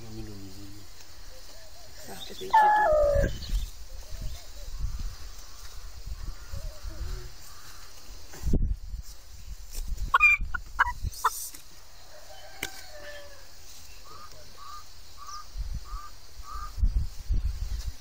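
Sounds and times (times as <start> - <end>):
hen squawking: 10.1 - 11.0
hen clucking: 10.1 - 11.4.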